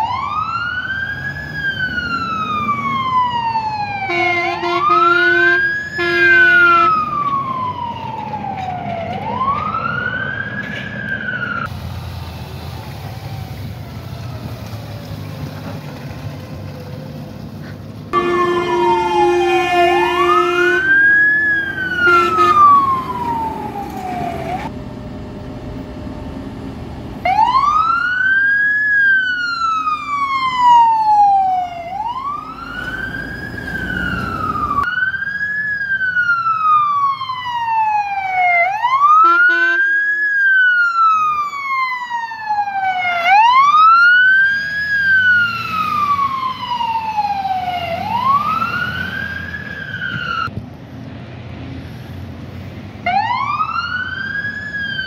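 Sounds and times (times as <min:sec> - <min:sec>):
fire engine siren wailing: 0:00.0 - 0:16.0, 0:18.1 - 0:50.5, 0:53.0 - 0:55.0
horn blast: 0:04.1 - 0:07.0, 0:18.2 - 0:21.0, 0:22.0 - 0:22.8.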